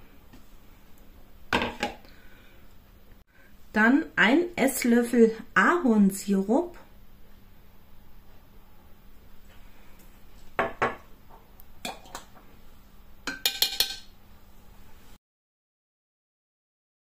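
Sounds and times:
spoon clinking on metal bowl: 13.3 - 14.1.

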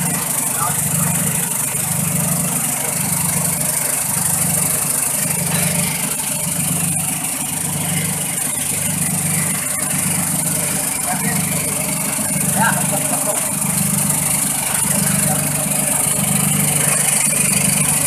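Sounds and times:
machine humming: 0.0 - 18.0.

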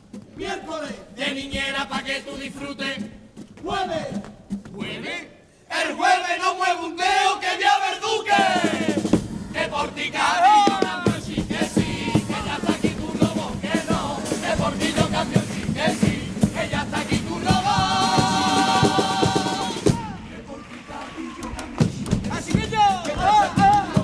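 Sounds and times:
men singing in chorus: 0.4 - 24.0
steady drum beat: 8.3 - 20.5, 21.4 - 24.0.

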